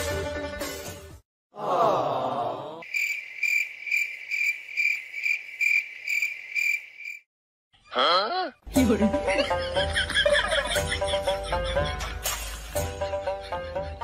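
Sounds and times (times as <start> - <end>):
crickets chirping: 2.8 - 7.3.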